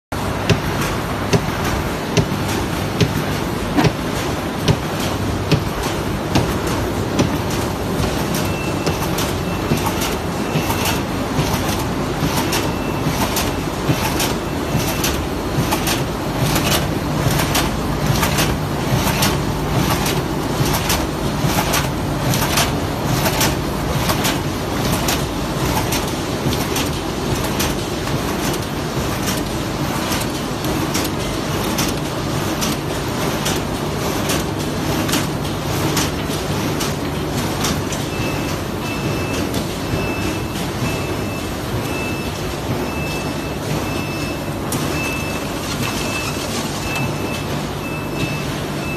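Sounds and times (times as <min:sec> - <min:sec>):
steady mechanical hum: 0:00.1 - 0:48.9
die-cutting machine clacking: 0:00.2 - 0:48.7.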